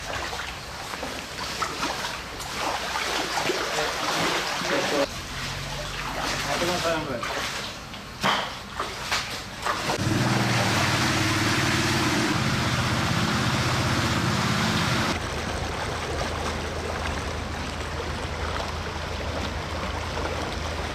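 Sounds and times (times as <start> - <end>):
water rushing: 0.0 - 20.9
petrol water pump engine running: 9.8 - 20.9
low steady hum: 10.8 - 20.9.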